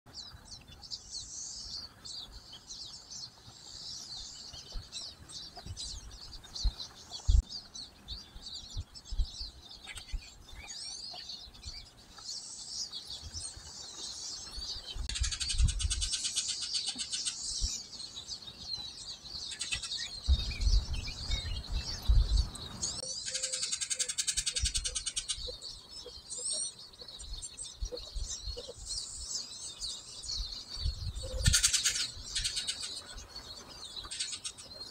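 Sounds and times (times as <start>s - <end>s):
songbirds chirping and twittering: 0.1s - 34.9s
low thumps and rumble: 20.2s - 22.6s
rapid buzzy bird trill: 22.9s - 29.5s, 31.2s - 33.2s, 34.1s - 34.9s.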